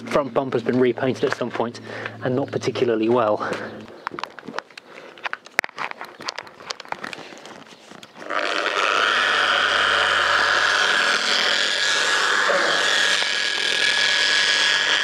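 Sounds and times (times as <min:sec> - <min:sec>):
polisher whining: 0:08.2 - 0:15.0.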